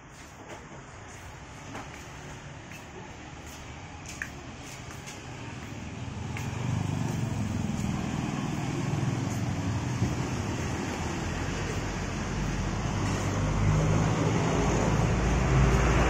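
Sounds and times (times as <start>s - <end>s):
cars going by: 1.8s - 16.0s
low engine rumble: 4.5s - 16.0s
motorcycles going by: 5.4s - 16.0s.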